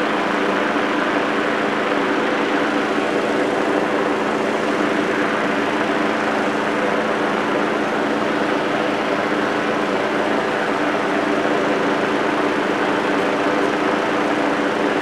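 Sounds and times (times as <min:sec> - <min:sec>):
fan engine droning: 0:00.0 - 0:15.0.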